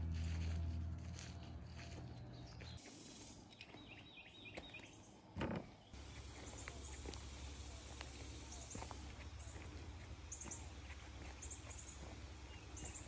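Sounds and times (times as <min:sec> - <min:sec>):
low rumble: 0:00.0 - 0:02.8
bird chirping: 0:01.7 - 0:13.0.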